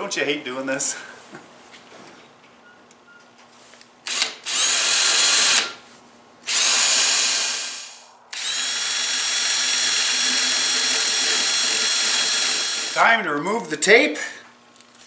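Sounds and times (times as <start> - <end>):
cordless drill boring wood: 4.1 - 5.8, 6.5 - 13.0.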